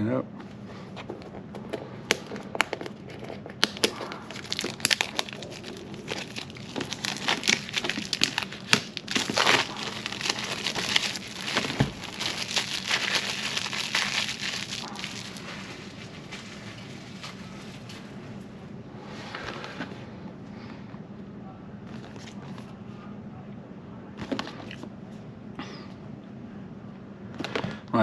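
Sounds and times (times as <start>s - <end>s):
plastic wrap crackling: 3.6s - 17.4s.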